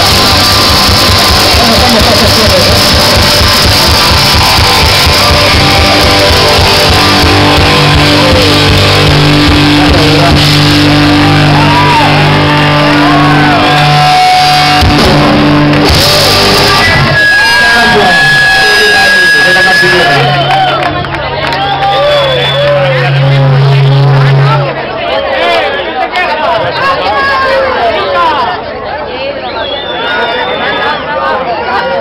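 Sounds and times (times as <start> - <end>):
rock band playing live: 0.0 - 24.8.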